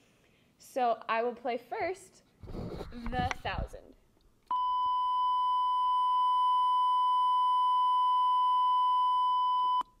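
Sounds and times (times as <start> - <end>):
steady sine tone: 4.5 - 10.0.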